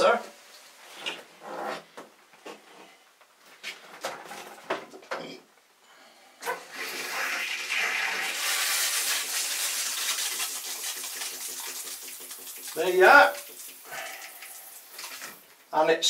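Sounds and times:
shower head spraying water: 6.7 - 15.4.

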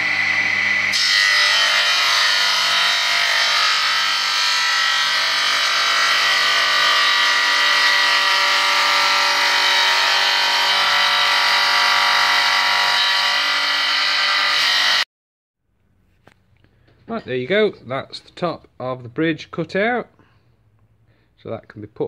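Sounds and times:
saw motor whine: 0.0 - 1.6
saw blade cutting wood: 0.0 - 15.1.

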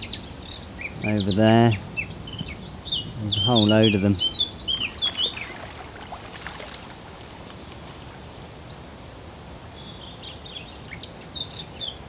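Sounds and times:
faint bird chirps: 0.0 - 8.2
low background hiss: 0.0 - 12.0.

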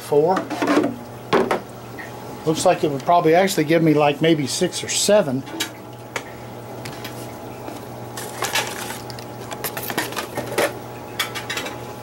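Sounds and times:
paper rustling: 7.2 - 10.8.

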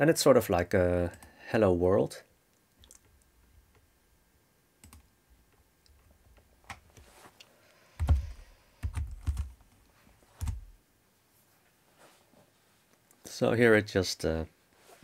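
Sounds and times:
computer keyboard keystrokes: 4.8 - 5.1, 8.0 - 9.6, 10.4 - 10.7.

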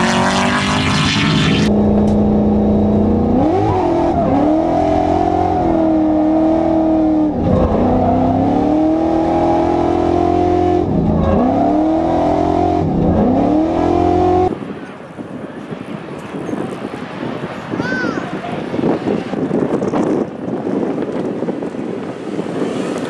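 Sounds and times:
car engine revving: 0.0 - 14.6.

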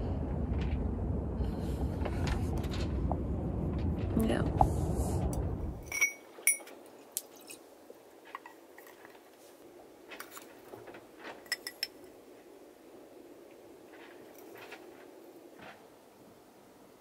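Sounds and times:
metal pot clinking: 5.9 - 6.7, 11.4 - 12.0.

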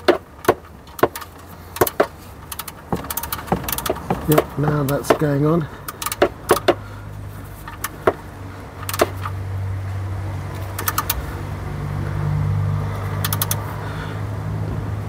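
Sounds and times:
ratchet wrench clicking: 0.0 - 5.2, 5.8 - 6.8, 7.6 - 8.2, 8.8 - 9.4, 10.7 - 11.2, 13.2 - 13.7.

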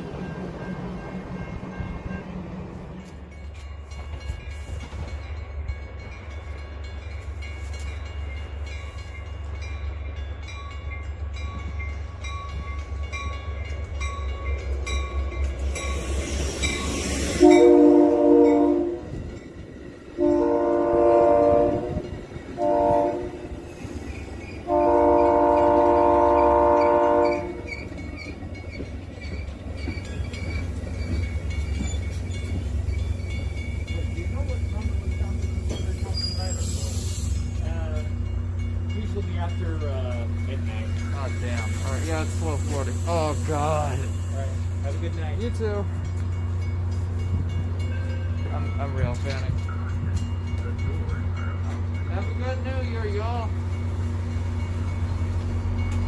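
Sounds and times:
train rumble: 0.0 - 56.0
train air horn blasts: 17.0 - 19.2, 20.2 - 23.6, 24.6 - 27.8.

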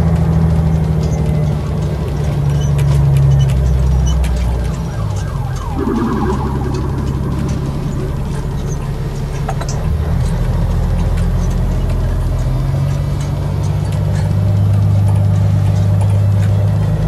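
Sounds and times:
police siren wailing: 4.3 - 9.4.

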